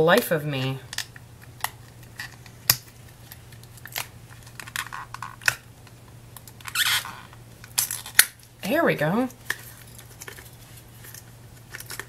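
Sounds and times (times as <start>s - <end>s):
packaging box clicks and scrapes: 9.4s - 12.0s.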